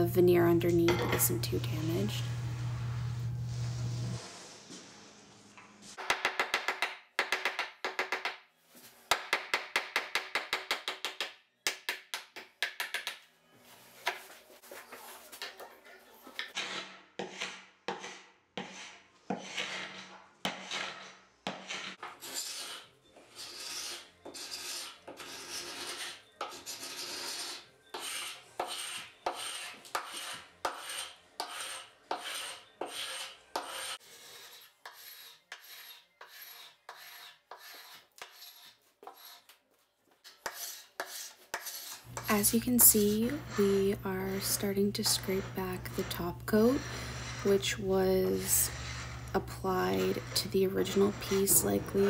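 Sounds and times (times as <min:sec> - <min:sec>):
scraper rasping over wood: 0:16.4 - 0:39.4, 0:40.3 - 0:52.0.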